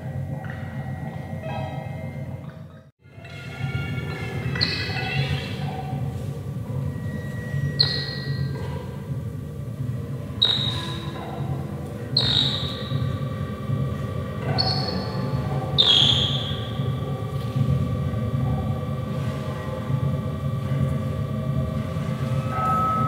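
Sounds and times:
low drone: 11.4 - 23.0
long held ringing tone: 22.0 - 23.0
struck tones ringing: 22.4 - 23.0.

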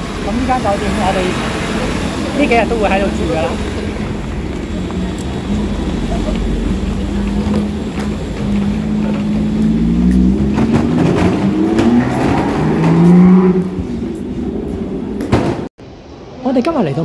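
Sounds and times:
wheels clicking over joints: 2.0 - 15.4.

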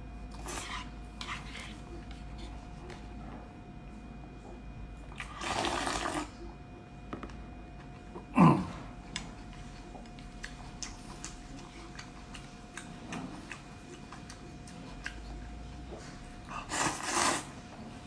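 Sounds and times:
loud slurp of noodles: 5.2 - 6.3, 16.7 - 17.6
wet chewing clicks: 9.1 - 15.7.

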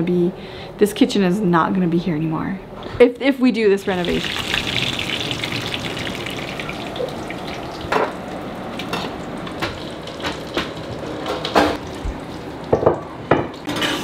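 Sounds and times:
food sizzling in a skillet: 3.8 - 6.6.

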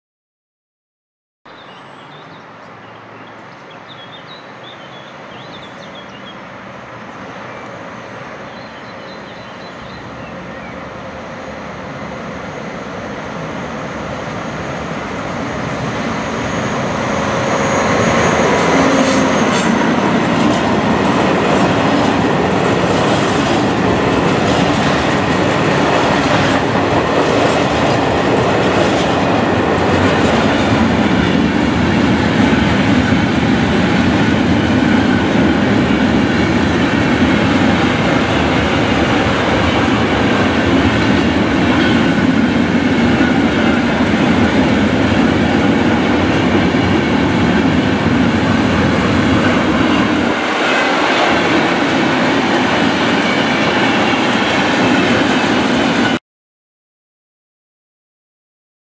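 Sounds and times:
freight train rumbling: 4.3 - 56.2.

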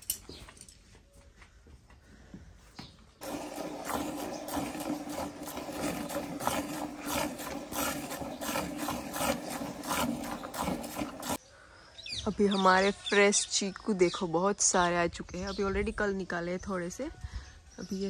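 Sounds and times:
milk squirting into a steel bowl: 3.2 - 11.4.

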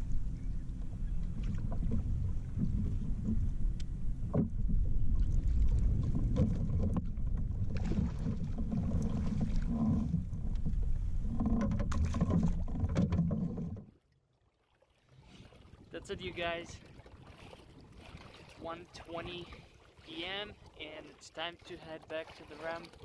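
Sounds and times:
wind buffeting microphone: 0.0 - 12.9, 15.3 - 19.7
water splashes and knocks: 0.7 - 23.0.

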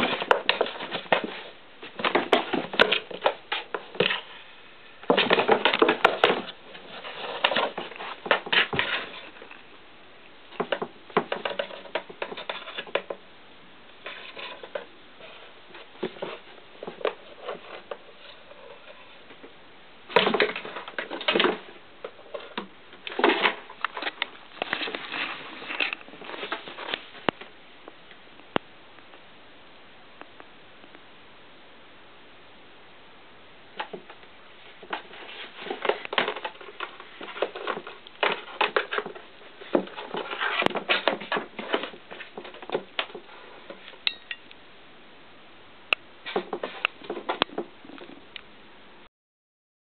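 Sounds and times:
cat scraping cardboard box: 5.1 - 9.4, 34.8 - 43.8.

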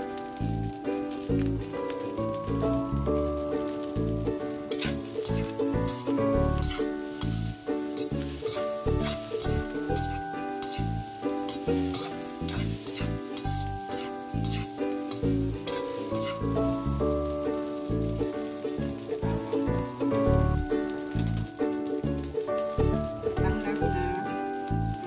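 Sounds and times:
rice sizzling in a wok: 0.0 - 25.0
metal spatula scraping a wok: 4.6 - 16.6
background music with bass: 11.7 - 21.5, 22.2 - 25.0.

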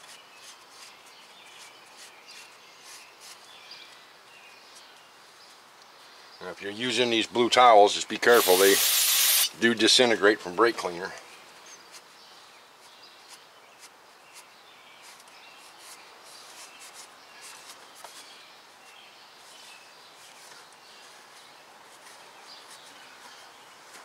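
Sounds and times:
birds chirping faintly: 0.0 - 8.8, 9.4 - 24.0
towel wiping engine surfaces: 8.2 - 9.5.

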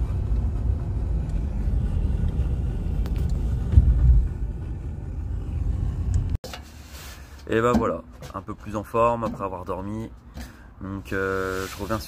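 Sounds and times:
car engine and tyre rumble: 0.0 - 12.0
low thump: 3.0 - 5.0.

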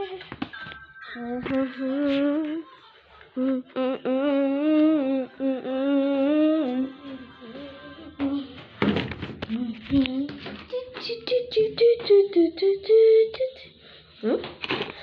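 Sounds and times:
person humming: 1.2 - 2.6, 3.4 - 8.6.

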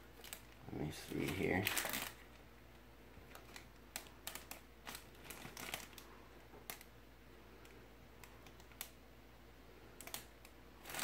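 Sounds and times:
plastic bag crinkling: 0.0 - 2.4, 3.2 - 6.9, 10.0 - 11.0.

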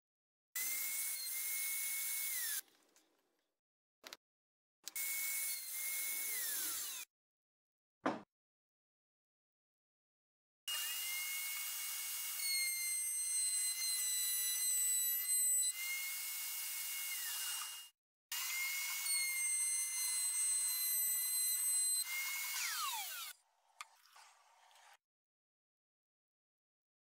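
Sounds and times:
router whining while cutting wood: 0.6 - 2.6, 4.9 - 7.1, 10.7 - 23.4.

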